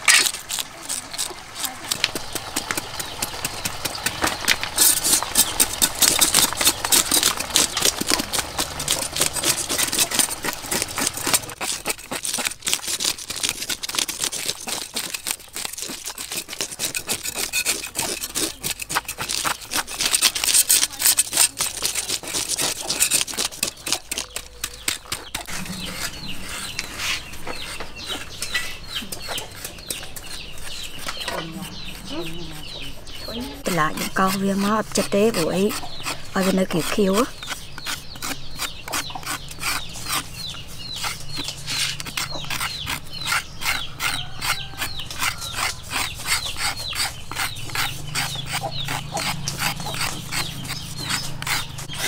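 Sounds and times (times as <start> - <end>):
knife scraping fish scales: 0.0 - 52.0
hens clucking: 23.6 - 52.0.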